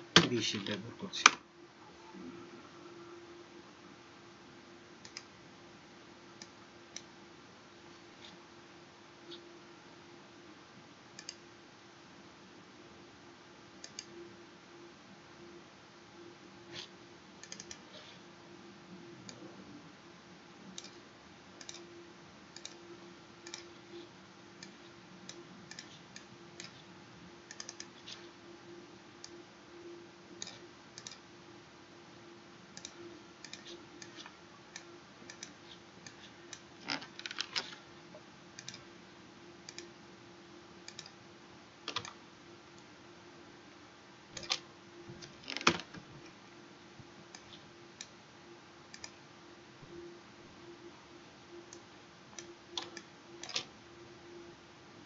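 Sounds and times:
faint steady hum: 0:00.0 - 0:55.0
mouse and keyboard clicks: 0:11.2 - 0:11.4, 0:13.8 - 0:14.1, 0:16.7 - 0:17.8, 0:20.8 - 0:21.0, 0:21.6 - 0:21.9, 0:23.4 - 0:23.8, 0:24.6 - 0:26.9, 0:27.5 - 0:28.3, 0:30.4 - 0:31.2, 0:32.8 - 0:37.8, 0:41.9 - 0:42.2, 0:44.4 - 0:44.6, 0:47.3 - 0:48.1, 0:52.4 - 0:53.7.

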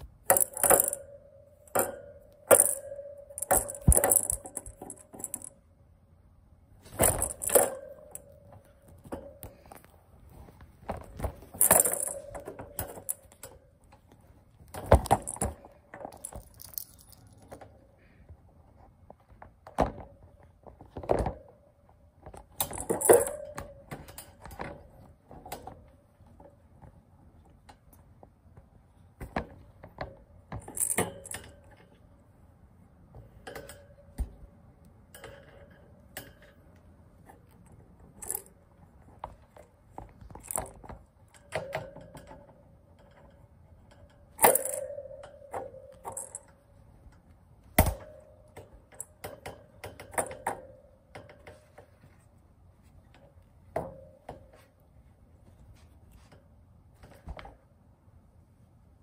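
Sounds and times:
kitten batting at toy: 0:01.7 - 0:05.5, 0:11.1 - 0:13.6.

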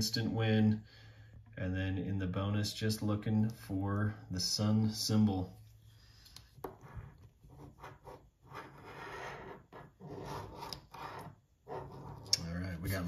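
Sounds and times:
coin scraping scratch card: 0:07.5 - 0:12.3.

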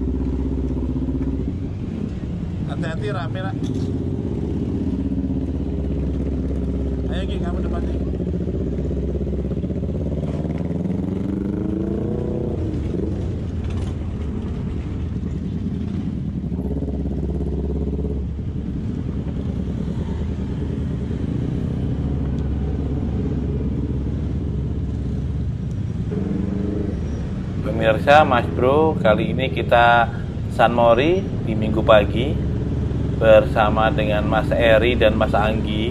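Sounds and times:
heavy low traffic rumble: 0:00.0 - 0:35.9
other motorcycles: 0:00.0 - 0:35.9
scooter engine pulling away: 0:03.8 - 0:28.6.

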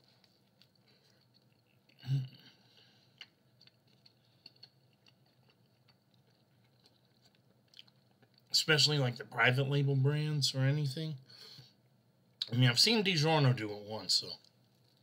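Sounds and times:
chewing with wet mouth clicks: 0:00.2 - 0:02.0, 0:03.1 - 0:08.5.

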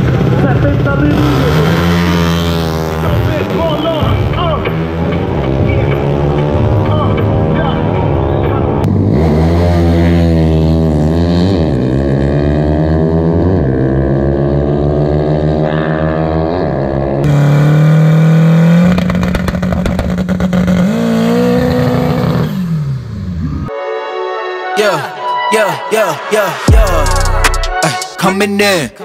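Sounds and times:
race car engine accelerating: 0:00.0 - 0:23.7
drag car engine revving with rattle: 0:00.1 - 0:07.5, 0:08.8 - 0:15.5, 0:16.2 - 0:23.5.

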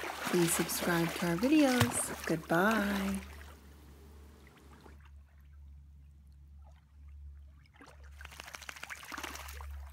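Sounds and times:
small splashes: 0:00.0 - 0:03.7, 0:06.6 - 0:09.9
low steady rumble: 0:00.0 - 0:08.3
water trickling and lapping: 0:00.0 - 0:09.9.

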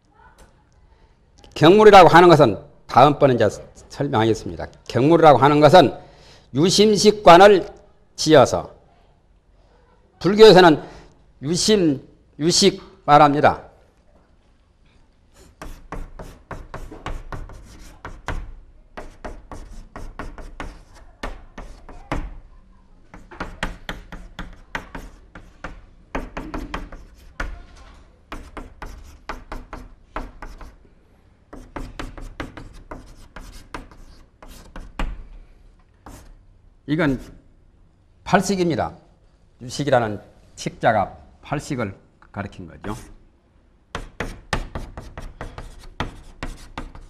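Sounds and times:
chalk writing on blackboard: 0:15.3 - 0:22.5, 0:23.1 - 0:30.8, 0:31.5 - 0:35.2, 0:36.0 - 0:36.4, 0:37.1 - 0:37.4, 0:42.8 - 0:43.2, 0:43.9 - 0:47.0.

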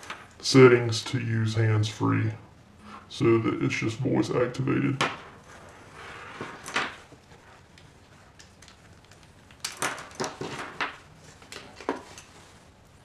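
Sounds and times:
soft rustle: 0:05.2 - 0:09.6, 0:10.3 - 0:13.0.

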